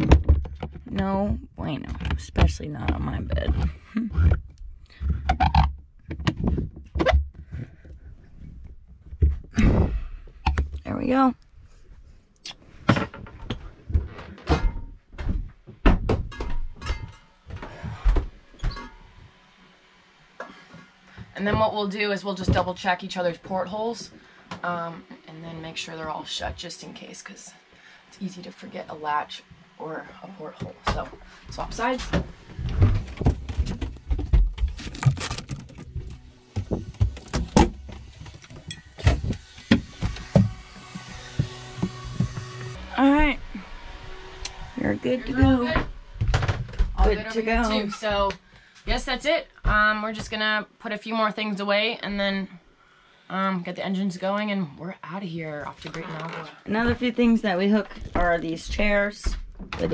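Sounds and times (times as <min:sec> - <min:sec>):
porthole knocks and clunks: 0:00.0 - 0:08.1.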